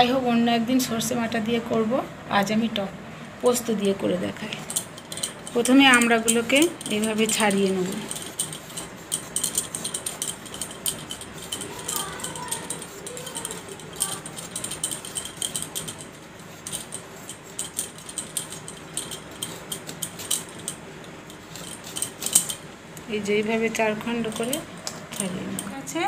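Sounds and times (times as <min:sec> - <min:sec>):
bangles clinking: 0:04.6 - 0:22.7, 0:24.1 - 0:25.8.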